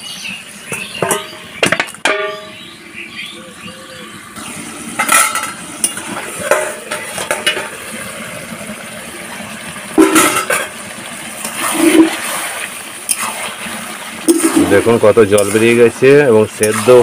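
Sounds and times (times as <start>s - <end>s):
metal spatula scraping pot: 13.0s - 17.0s.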